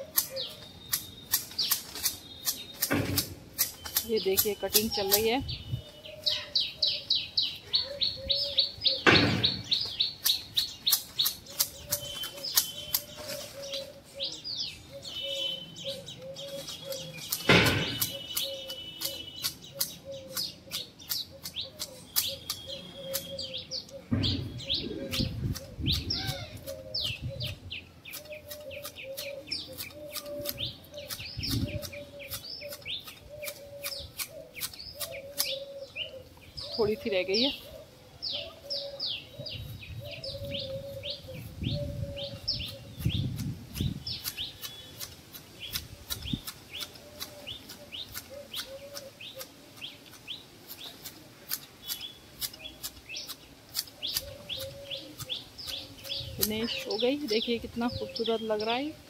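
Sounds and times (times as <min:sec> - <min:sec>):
hedge shears clicking: 0:00.0 - 0:06.0, 0:08.9 - 0:14.0, 0:15.3 - 0:37.6, 0:42.2 - 0:58.8
small birds chirping: 0:00.0 - 0:59.0.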